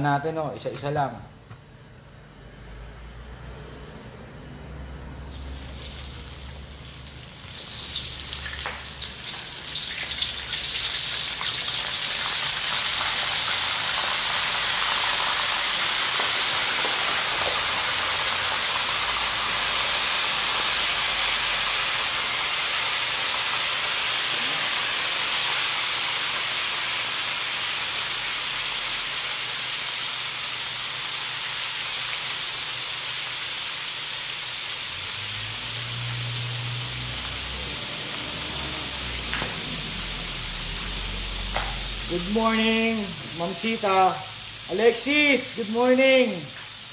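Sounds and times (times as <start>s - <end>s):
deep-frying sizzle in oil: 5.2s - 46.9s.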